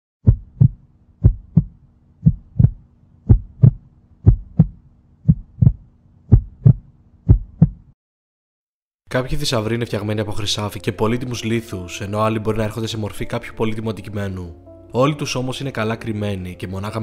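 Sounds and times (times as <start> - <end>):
heartbeat double thump: 0.2 - 7.9.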